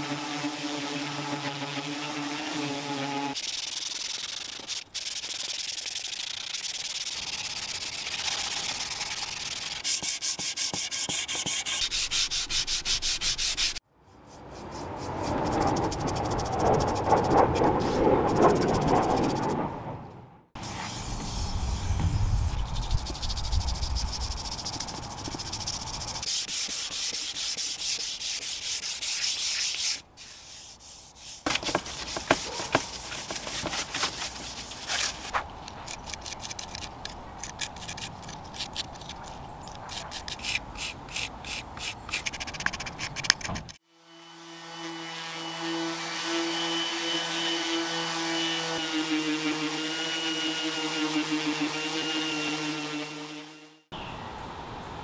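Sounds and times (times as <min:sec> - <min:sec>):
orbital sander humming: 0:00.0 - 0:13.8, 0:43.9 - 0:53.8
gloved hand scrubbing wood: 0:00.0 - 0:17.6, 0:23.2 - 0:35.4
putty knife scraping and tapping: 0:35.9 - 0:43.8.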